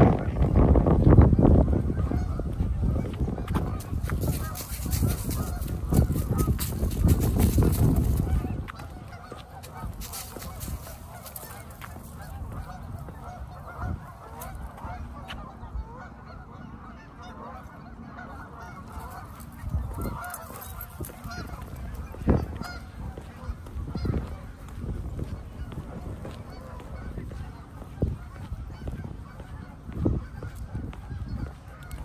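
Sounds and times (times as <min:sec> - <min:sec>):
flock of geese honking: 0:00.0 - 0:32.0
footsteps crunching in dry leaves: 0:03.0 - 0:14.8, 0:18.9 - 0:32.0.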